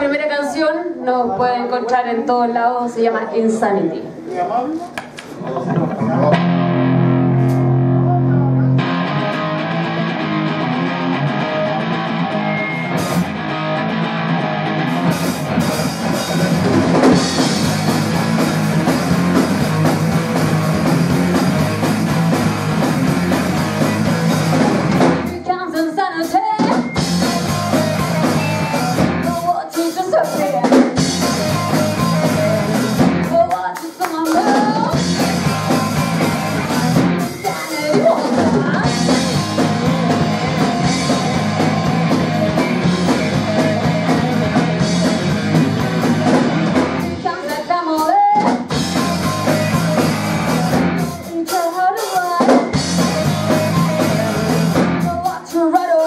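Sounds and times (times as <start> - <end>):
electric guitars: 4.9 - 56.0
drum kit: 5.0 - 56.0
electric bass: 6.0 - 25.4, 27.0 - 29.4, 31.0 - 33.5, 34.8 - 37.5, 38.4 - 47.3, 48.5 - 51.3, 52.7 - 55.2.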